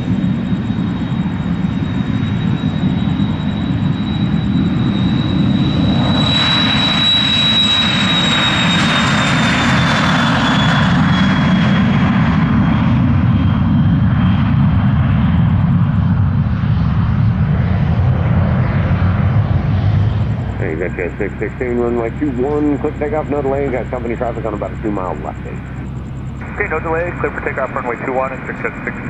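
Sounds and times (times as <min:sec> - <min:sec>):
jet taking off: 0:00.0 - 0:29.0.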